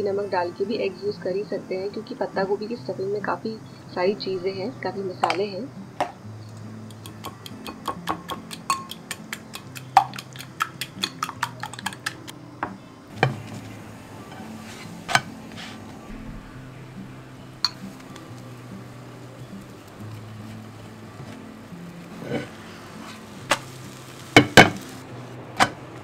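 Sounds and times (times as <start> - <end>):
soft background music: 0.0 - 26.0
metal spoon clinking on glass bowl: 6.9 - 12.3.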